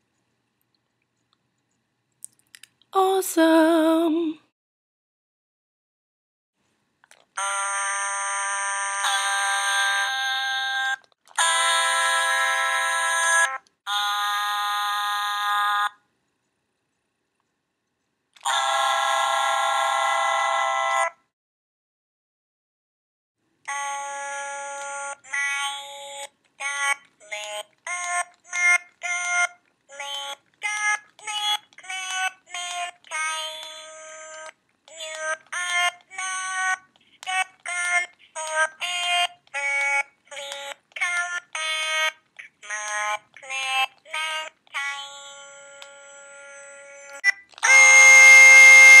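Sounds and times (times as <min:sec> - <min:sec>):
toy singing electronic syllables: 0:18.4 - 0:19.9, 0:23.7 - 0:49.0.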